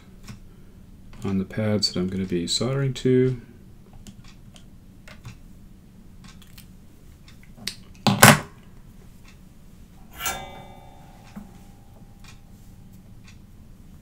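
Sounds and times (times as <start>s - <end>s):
tools scraping clatter: 10.0s - 12.9s
metallic clink: 10.0s - 13.0s.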